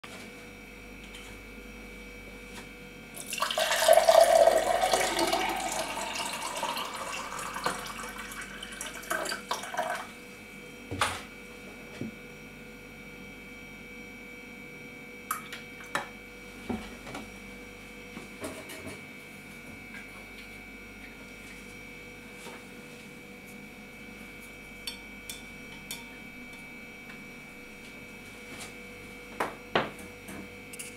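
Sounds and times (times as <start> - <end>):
water poured into glass: 3.2 - 10.1.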